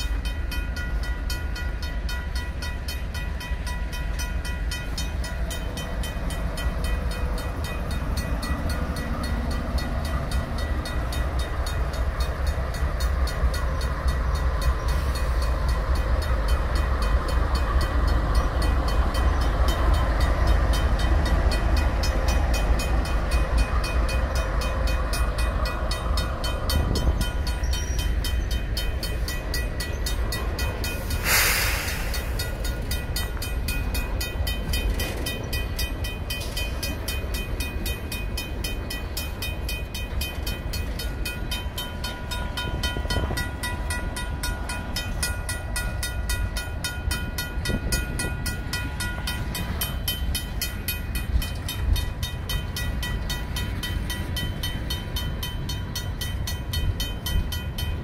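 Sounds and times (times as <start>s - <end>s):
crossing bell ringing: 0.0s - 58.0s
freight train rumbling on rails: 0.0s - 58.0s
short hiss: 31.0s - 32.4s.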